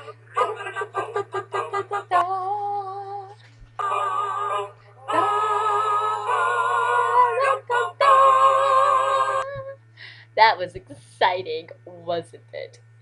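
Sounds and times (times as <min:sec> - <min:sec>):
low electrical hum: 0:00.0 - 0:13.0
woman singing: 0:02.0 - 0:03.4, 0:05.1 - 0:09.8.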